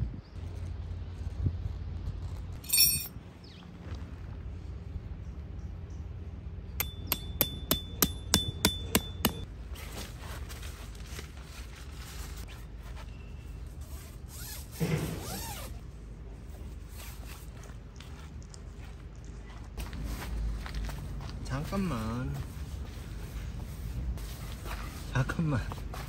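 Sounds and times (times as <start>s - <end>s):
metal tent peg hammered: 6.8s - 9.5s.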